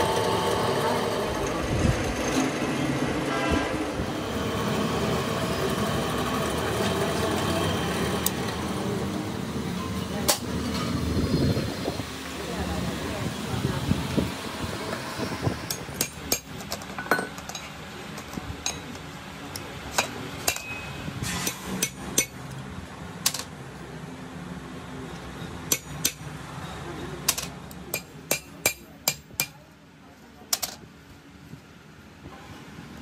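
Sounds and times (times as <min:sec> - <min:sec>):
metal tools tapping on steel: 0:15.7 - 0:19.0, 0:20.0 - 0:22.6, 0:25.7 - 0:26.3, 0:27.2 - 0:29.6.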